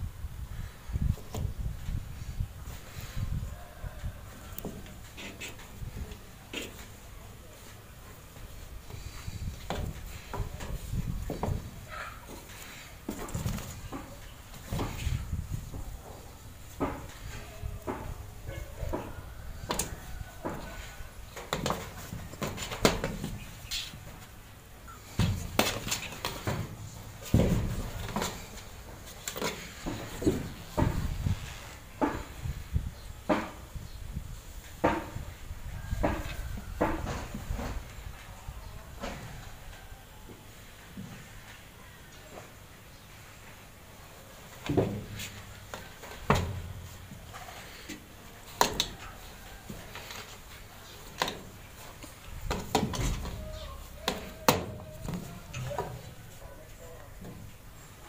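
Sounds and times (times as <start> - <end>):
dull thumps: 8.8 - 24.2, 25.0 - 32.6, 44.6 - 48.0, 51.1 - 56.4.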